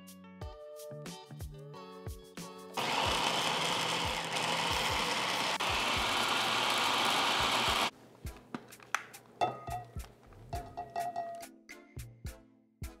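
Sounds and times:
food processor motor chopping: 2.8s - 7.9s.

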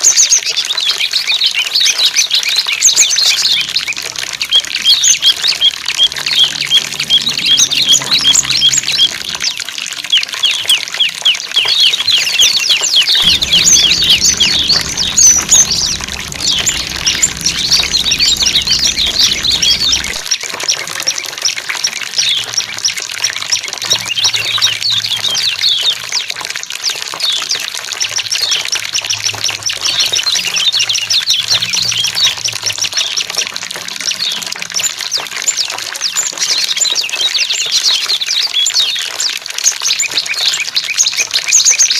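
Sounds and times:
running water: 0.0s - 41.9s
songbirds chirping and trilling: 1.0s - 20.4s.

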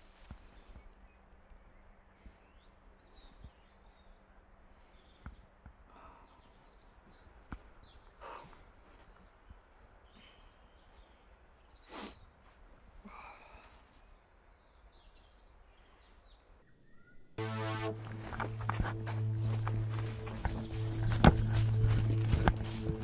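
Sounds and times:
soft handling rustles: 18.2s - 23.0s.

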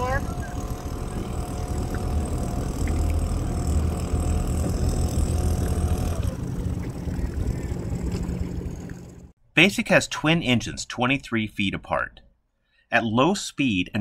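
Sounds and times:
boat engine running: 0.0s - 9.4s.

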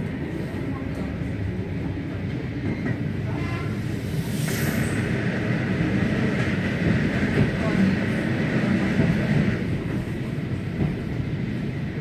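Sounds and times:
passing train rush: 0.0s - 12.0s
train carriage rumble: 0.0s - 12.0s.

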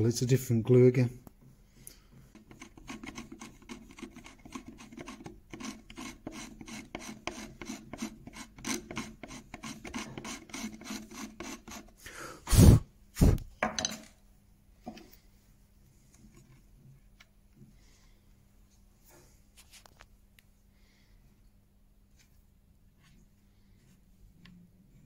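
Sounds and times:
chisel scraping glue off wood: 2.4s - 12.0s.

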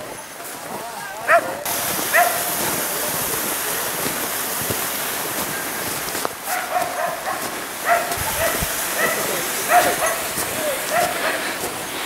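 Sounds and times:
dog yipping: 1.3s - 2.5s, 6.5s - 10.3s, 10.9s - 11.2s
steady hiss: 1.6s - 12.0s.

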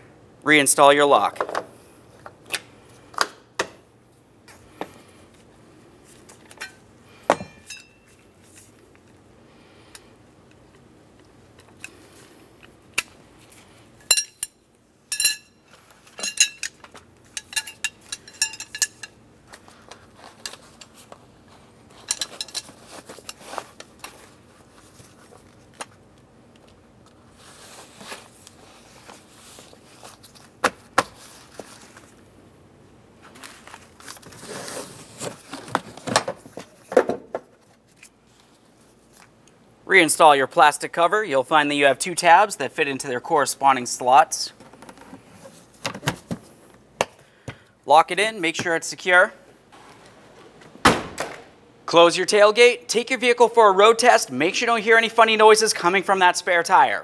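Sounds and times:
steel rods clinking: 6.6s - 8.1s, 14.0s - 15.6s, 16.2s - 19.2s.

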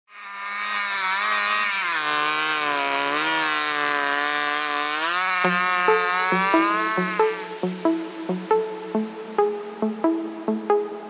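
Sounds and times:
snowmobile engine under throttle: 0.0s - 7.6s.

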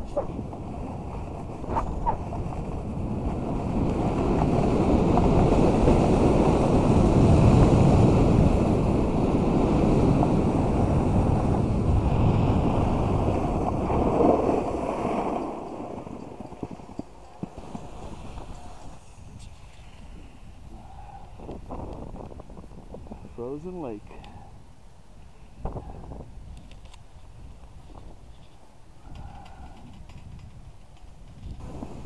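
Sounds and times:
snowboard sliding on snow: 0.0s - 20.5s, 31.6s - 32.0s
wind rushing over microphone: 0.0s - 32.0s.

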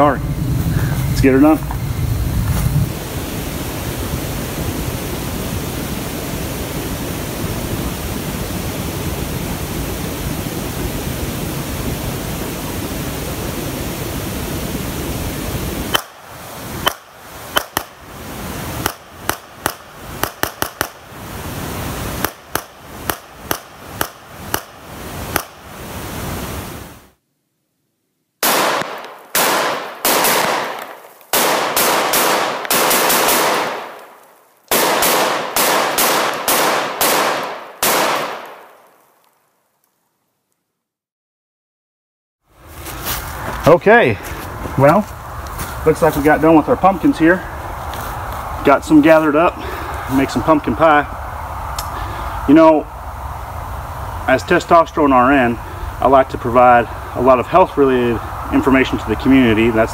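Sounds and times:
steady rushing noise: 0.0s - 27.2s, 42.5s - 59.9s
rifle shots: 18.8s - 21.0s, 22.2s - 25.6s, 28.4s - 34.0s, 34.7s - 38.8s.

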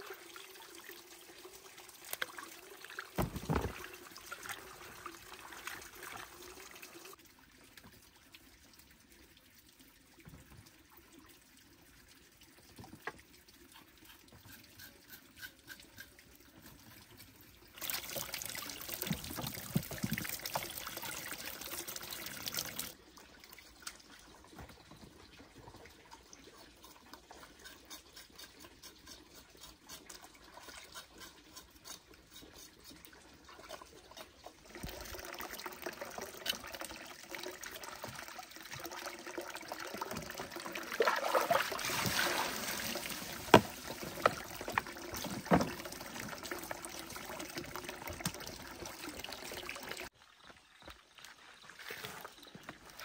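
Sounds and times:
water trickling and pouring: 0.0s - 53.0s
small water splashes: 33.5s - 53.0s.

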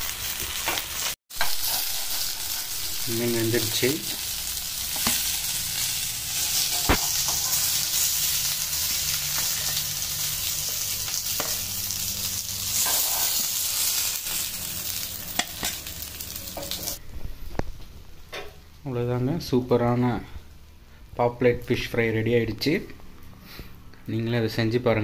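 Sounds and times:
fish sizzling in oil: 0.0s - 17.0s.

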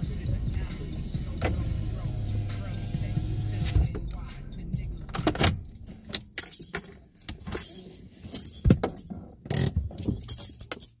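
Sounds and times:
light metallic jingling: 5.0s - 11.0s.

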